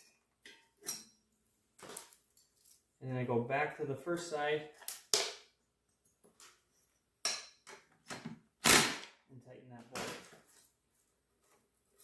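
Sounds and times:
hand tools and metal parts clicking: 0.0s - 3.0s.

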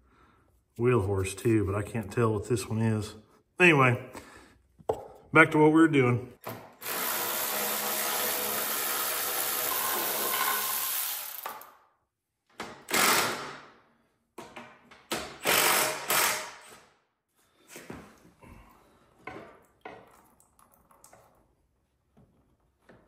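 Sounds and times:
cordless drill driving bolts: 6.4s - 11.6s, 12.9s - 13.5s, 15.4s - 16.6s.

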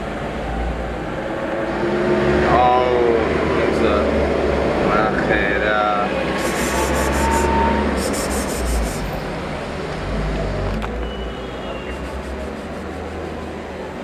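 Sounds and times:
scratchy rubbing: 6.3s - 9.1s, 11.9s - 13.7s.

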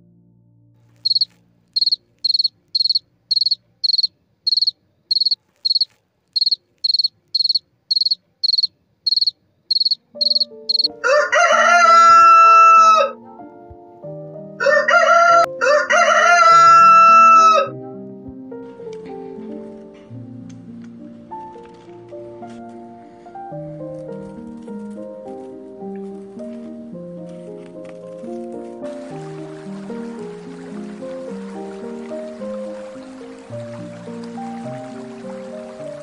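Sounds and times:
soft piano music: 0.0s - 3.6s, 10.0s - 36.0s
insect chirping: 1.0s - 10.9s
rooster crowing: 9.8s - 13.2s, 14.6s - 17.7s.

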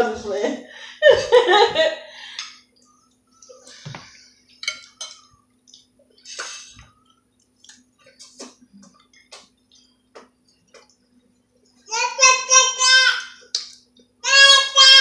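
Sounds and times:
spoons clinking on plates: 4.5s - 5.3s.

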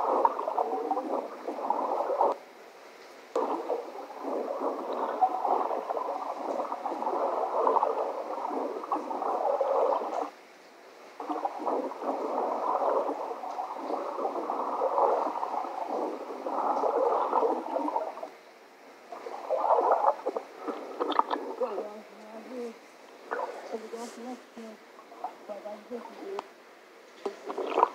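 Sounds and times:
muffled underwater gurgling: 0.0s - 2.4s, 3.4s - 10.4s, 11.1s - 18.4s, 19.0s - 26.5s, 27.2s - 27.9s.

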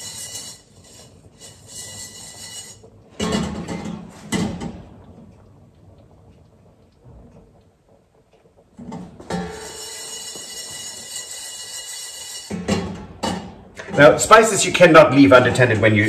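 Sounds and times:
spices rattling in pan: 0.0s - 3.4s, 9.3s - 13.4s
pan scraping on metal grate: 0.0s - 4.6s, 8.8s - 14.8s.

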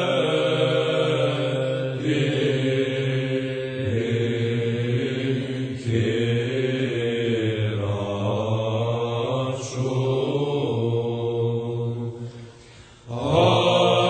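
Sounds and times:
psalm chanted in slow melody: 0.0s - 14.0s.

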